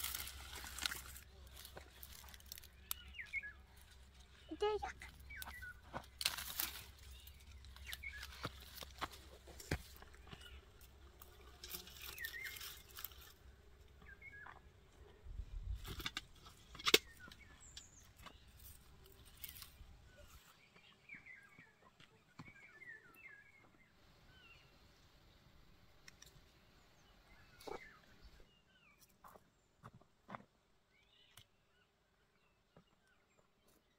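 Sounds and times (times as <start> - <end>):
rustling of vegetables being picked: 0.0 - 13.4, 15.7 - 20.7
small birds chirping: 0.0 - 30.0, 30.8 - 33.9.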